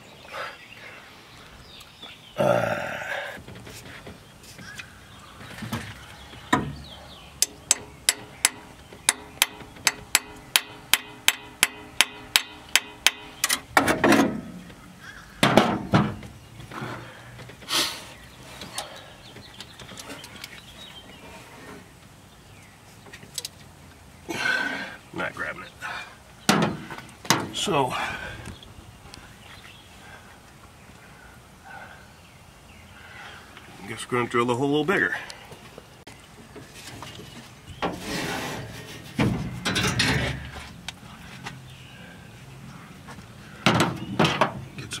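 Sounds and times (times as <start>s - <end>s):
hand tools knocking and clattering: 7.4s - 14.5s.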